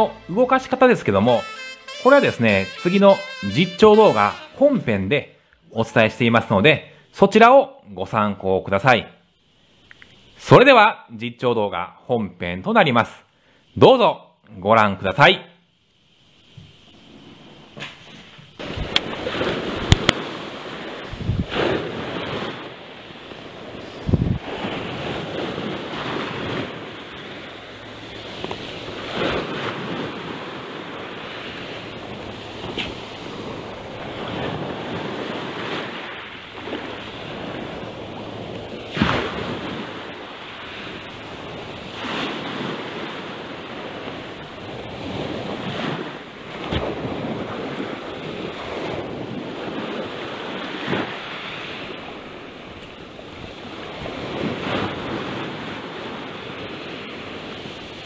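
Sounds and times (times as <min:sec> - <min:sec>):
surf washing over rocks: 0:16.5 - 0:58.0
wind on microphone: 0:18.6 - 0:58.0.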